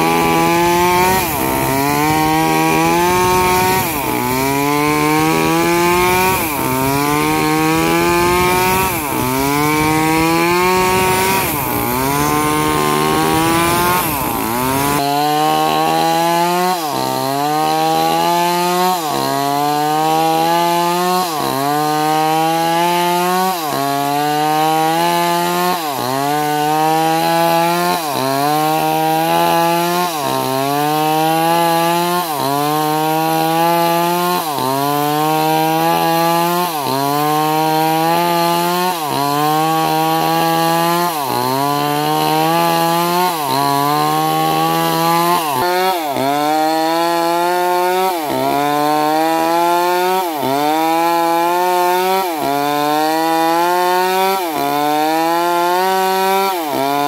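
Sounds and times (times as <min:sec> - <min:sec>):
chainsaw cutting wood: 0:00.0 - 0:57.0.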